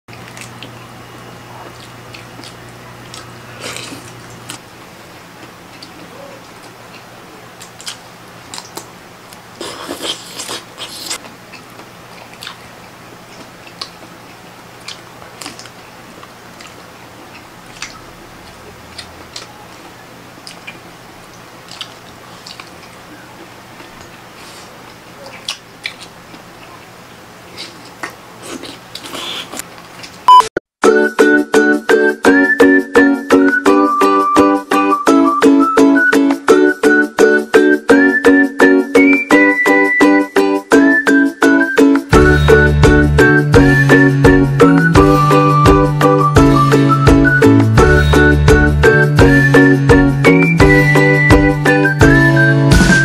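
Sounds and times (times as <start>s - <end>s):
wet chewing: 0.1s - 0.8s, 1.5s - 4.6s, 5.4s - 26.9s, 27.5s - 30.2s.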